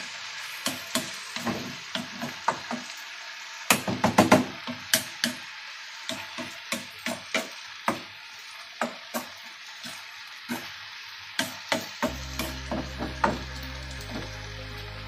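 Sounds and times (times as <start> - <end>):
vegetables sizzling in a pan: 0.0 - 15.0
background music: 12.1 - 15.0.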